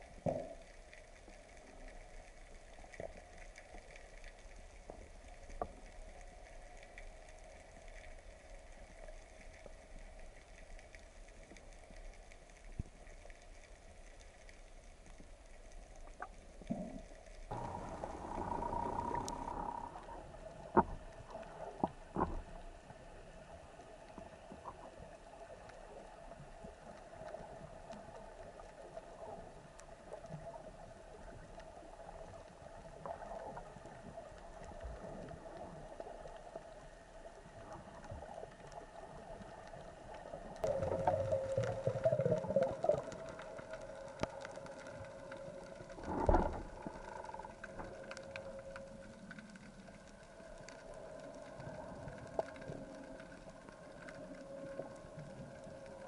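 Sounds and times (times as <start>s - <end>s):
faint crackling: 0.0s - 56.0s
steady low underwater hum: 0.0s - 56.0s.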